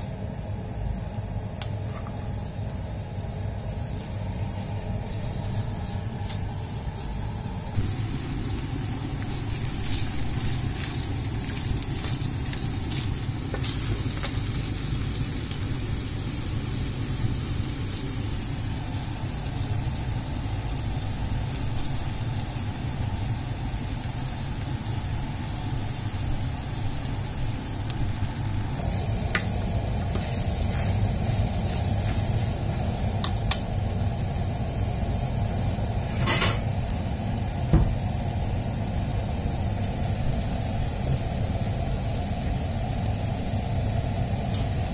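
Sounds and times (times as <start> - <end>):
meat sizzling in a pan: 0.0 - 44.9.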